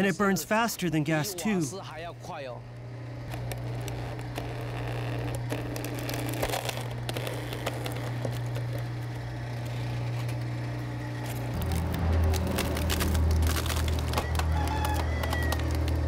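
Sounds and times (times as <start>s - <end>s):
low machine hum: 0.0s - 16.0s
wood crackling and cracking: 3.2s - 16.0s.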